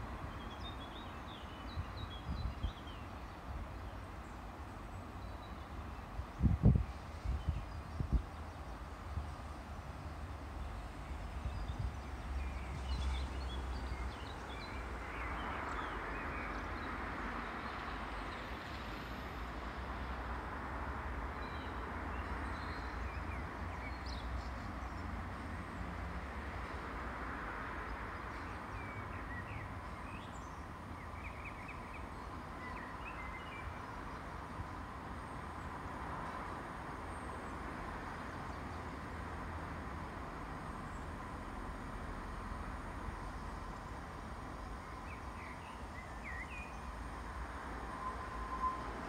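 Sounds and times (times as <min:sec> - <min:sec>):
small birds chirping: 0:00.2 - 0:09.1, 0:27.9 - 0:35.7, 0:43.8 - 0:47.0.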